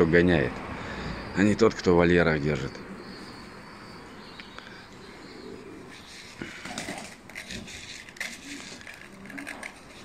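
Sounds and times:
pigeons cooing: 2.6s - 10.0s
wings fluttering: 5.9s - 10.0s.

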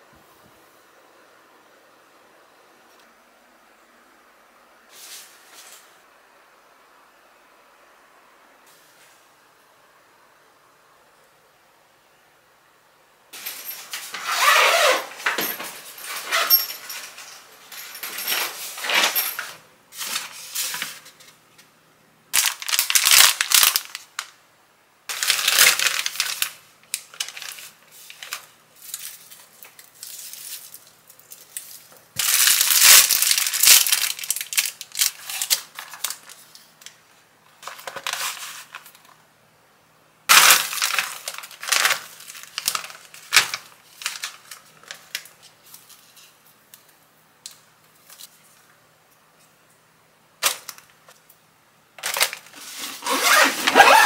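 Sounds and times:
plastic packaging rustling: 13.4s - 21.4s, 22.4s - 24.4s, 25.1s - 39.2s, 40.3s - 46.6s, 52.0s - 54.0s.

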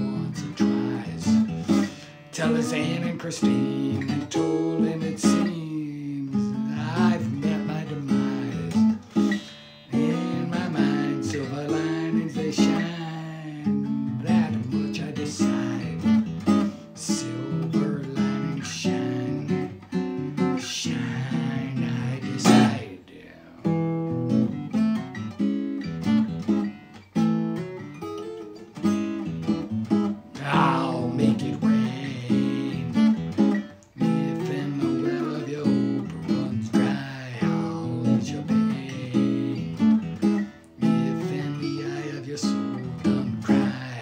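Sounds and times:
acoustic guitar strumming: 0.0s - 44.0s.

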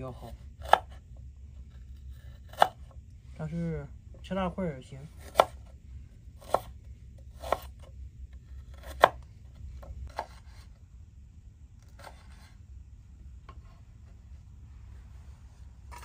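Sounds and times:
knife chopping on wooden board: 0.6s - 1.0s, 2.4s - 2.9s, 5.2s - 5.7s, 6.4s - 7.9s, 8.7s - 9.2s, 9.8s - 10.6s
light knife cutting strokes: 10.0s - 10.8s, 11.8s - 12.6s.

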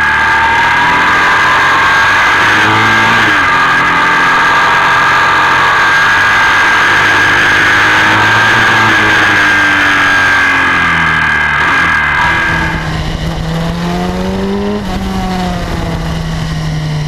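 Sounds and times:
high whine: 0.0s - 17.0s
motorcycle engine running: 0.0s - 17.0s
wind noise: 7.5s - 17.0s.

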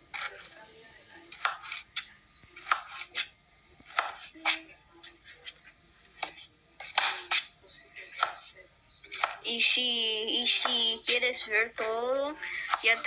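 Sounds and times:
knife chopping vegetables: 0.0s - 0.6s, 1.2s - 7.5s, 8.1s - 9.5s, 10.4s - 11.9s, 12.6s - 13.0s.

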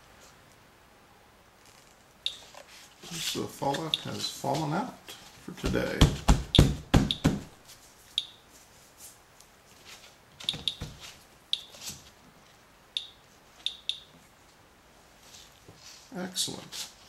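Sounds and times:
gloved hands knocking counter: 5.6s - 7.5s
geiger counter clicking: 13.0s - 14.1s.

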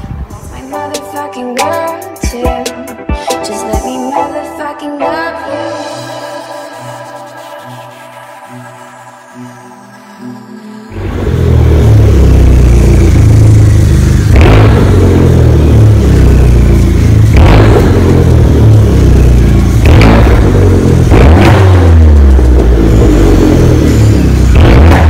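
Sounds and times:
car engine idling and revving: 6.8s - 25.0s.

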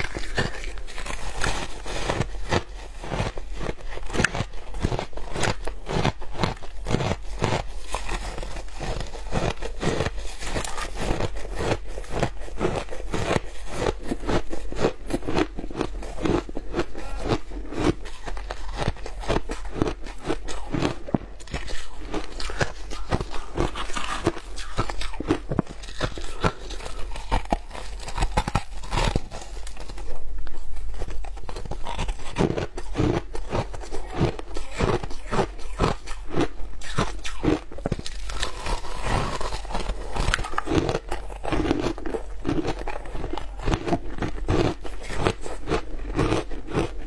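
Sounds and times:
ice crunching being chewed: 0.0s - 47.0s.

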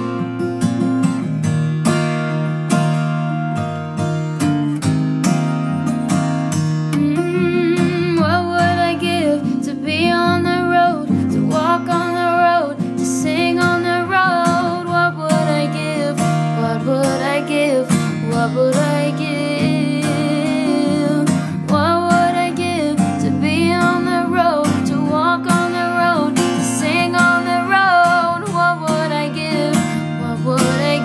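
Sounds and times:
strummed acoustic guitar: 0.0s - 31.0s
person singing: 7.0s - 31.0s.

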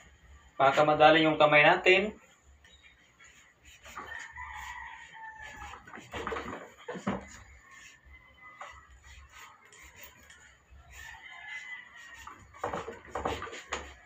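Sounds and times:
rooster crowing: 4.0s - 6.4s, 10.9s - 14.0s.

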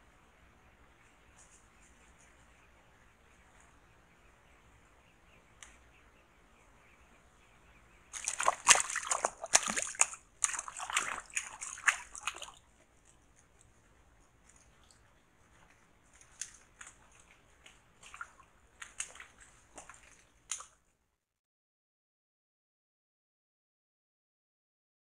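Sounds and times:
animal splashing through muddy water: 8.1s - 20.9s.

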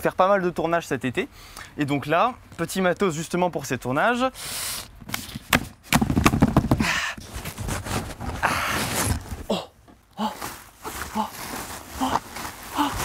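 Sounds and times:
cardboard knocks and scraping: 5.1s - 9.5s
plastic packing rustling: 5.2s - 13.0s.

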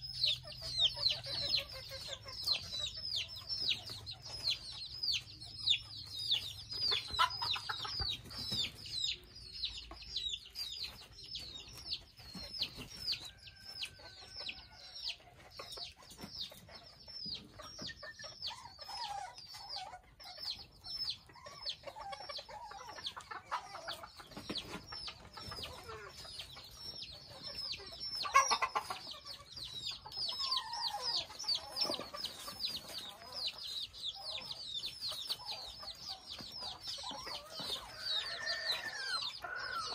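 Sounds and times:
chickens clucking and calling: 0.0s - 39.9s
chicks peeping: 0.0s - 39.9s.

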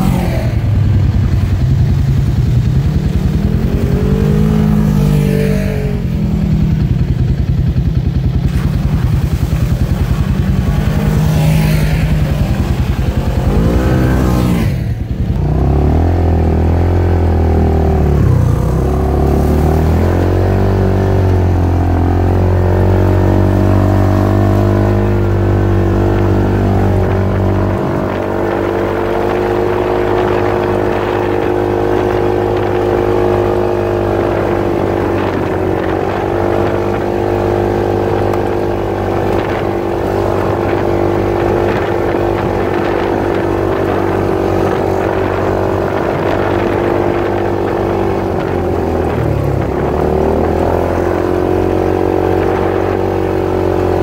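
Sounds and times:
side-by-side engine revving: 0.0s - 54.0s.

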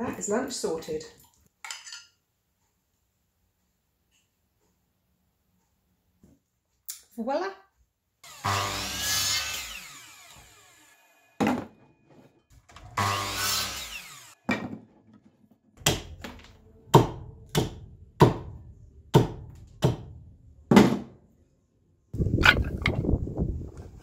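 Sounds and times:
mitre saw cutting wood: 8.2s - 11.4s, 12.8s - 14.5s.

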